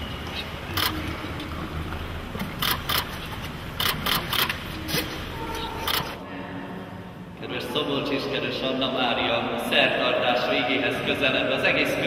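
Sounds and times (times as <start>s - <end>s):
camera shutter clicking: 3.8s - 4.6s.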